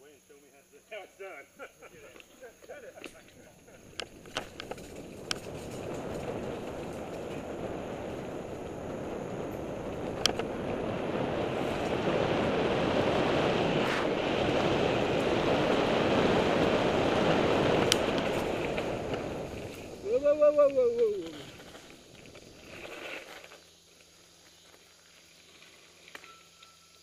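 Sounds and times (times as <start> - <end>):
bike tyres rolling on dirt: 1.8 - 27.0
bike rattling clicks: 3.0 - 7.5, 9.4 - 10.6, 17.8 - 19.9
wind over microphone: 3.6 - 22.8.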